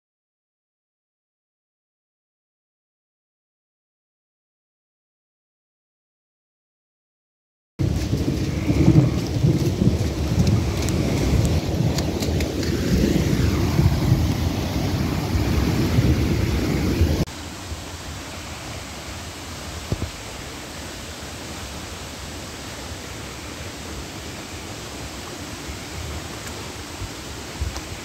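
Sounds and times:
low rumble: 0:07.8 - 0:17.3
rain: 0:07.8 - 0:28.0
rushing creek water: 0:07.8 - 0:28.0.

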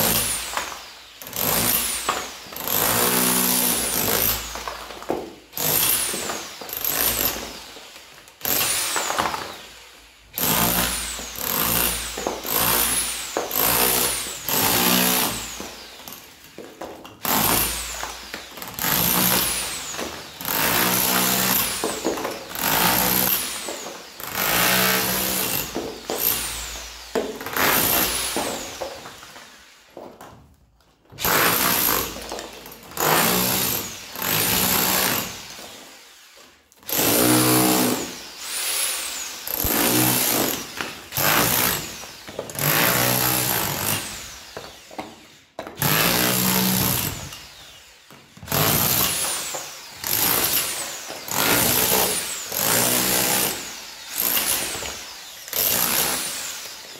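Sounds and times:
rotary hammer chiselling brick: 0:10.4 - 0:29.0.

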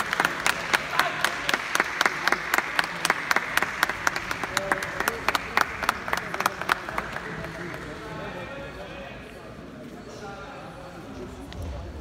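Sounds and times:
spectators applauding: 0:00.0 - 0:08.1.

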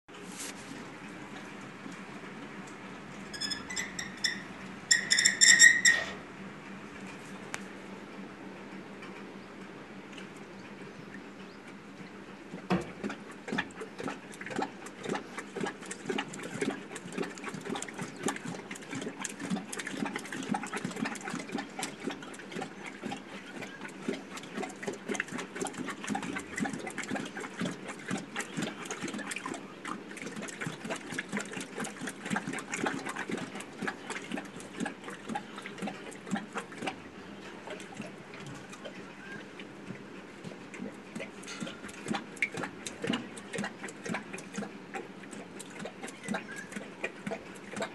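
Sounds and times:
lioness lapping water: 0:00.1 - 0:08.5, 0:09.1 - 0:47.9.

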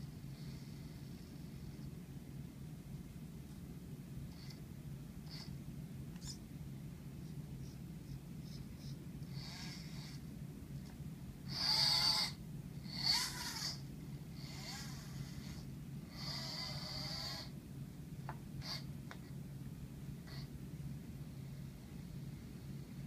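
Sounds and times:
robot motors whining: 0:13.0 - 0:13.8.

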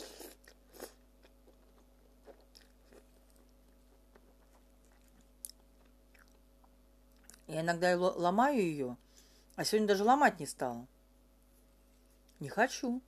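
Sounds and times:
person chewing: 0:00.0 - 0:07.5.

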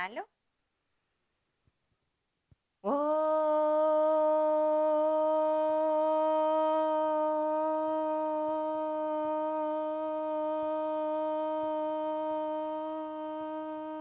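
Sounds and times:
woman chanting om: 0:02.9 - 0:14.0.

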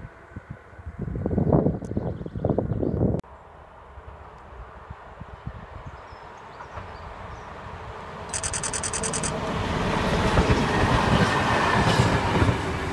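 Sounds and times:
train wheels on rails: 0:08.3 - 0:12.9.

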